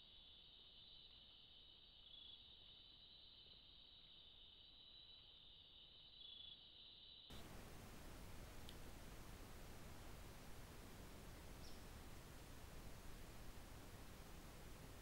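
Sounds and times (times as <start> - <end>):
insects trilling: 0.0 - 15.0
steady hiss: 7.3 - 15.0.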